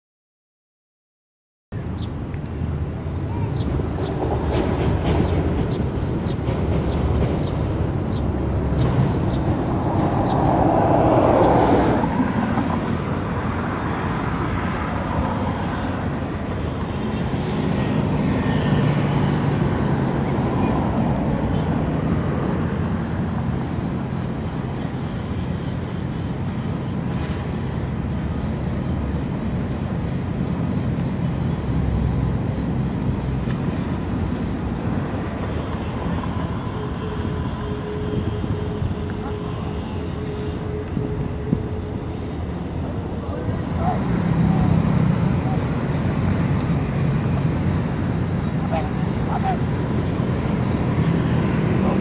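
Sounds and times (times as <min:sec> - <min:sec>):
large engine rumbling: 0:01.8 - 0:52.0
rushing noise: 0:02.6 - 0:52.0.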